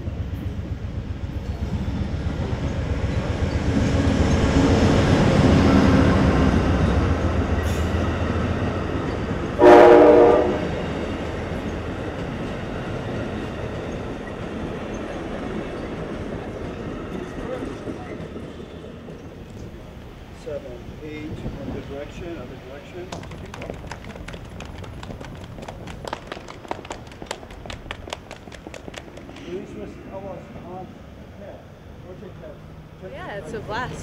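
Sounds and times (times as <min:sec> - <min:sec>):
train wheels rumbling on rail: 0:00.0 - 0:32.8
train horn blast: 0:09.5 - 0:11.1.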